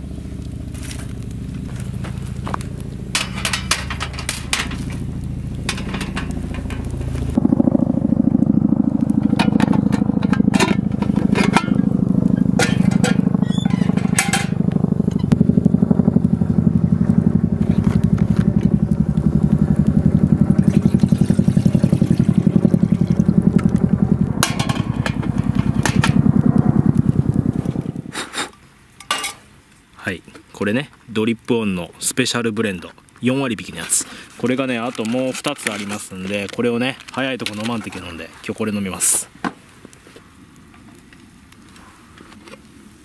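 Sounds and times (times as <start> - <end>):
engine running: 0.0 - 28.1.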